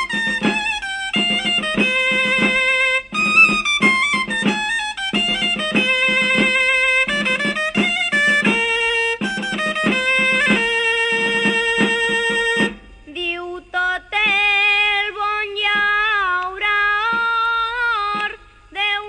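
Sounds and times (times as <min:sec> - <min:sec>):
drum strokes: 0:00.0 - 0:13.1
shawm playing: 0:00.0 - 0:13.1.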